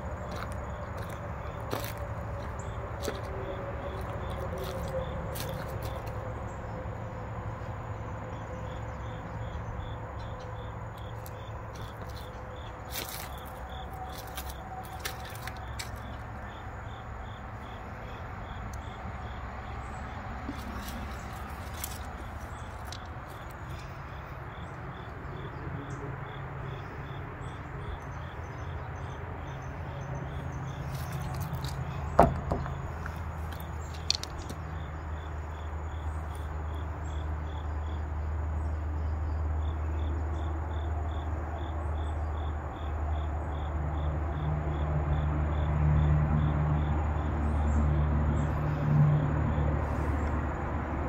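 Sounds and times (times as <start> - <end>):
insects chirping: 0.0 - 51.0
low rumble of road traffic: 0.0 - 51.0
sharp knock: 32.2 - 32.8.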